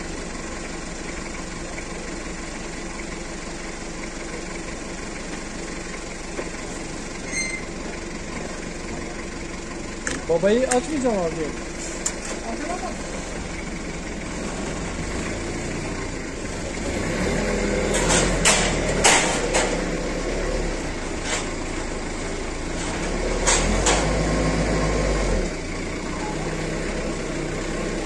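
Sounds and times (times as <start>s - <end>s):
forklift engine running: 0.0s - 28.0s
metallic clanks: 17.8s - 20.0s.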